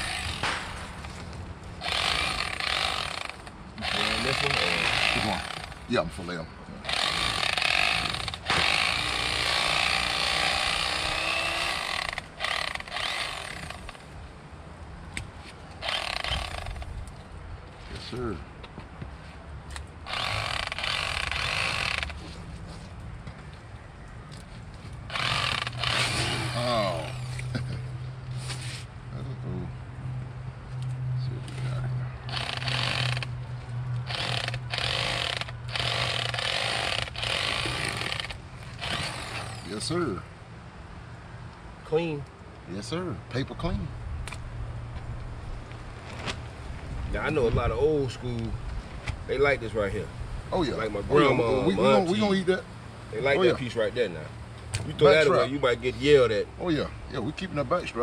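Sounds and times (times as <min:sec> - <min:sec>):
electric knife buzzing: 0:00.0 - 0:05.9, 0:06.8 - 0:14.1, 0:15.8 - 0:16.9, 0:20.0 - 0:22.3, 0:25.1 - 0:27.5, 0:32.3 - 0:33.4, 0:34.0 - 0:39.8.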